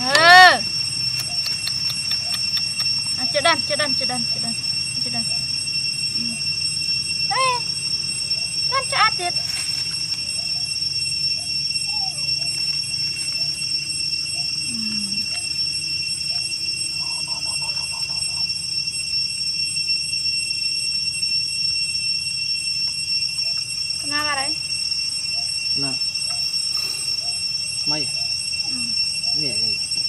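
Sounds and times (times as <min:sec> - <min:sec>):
rapid chirping calls: 0:00.0 - 0:05.6, 0:25.3 - 0:29.6
night insects droning: 0:00.0 - 0:30.0
small squeaks: 0:01.0 - 0:05.5, 0:08.3 - 0:13.6
baby monkeys suckling: 0:01.1 - 0:03.1, 0:26.6 - 0:27.4.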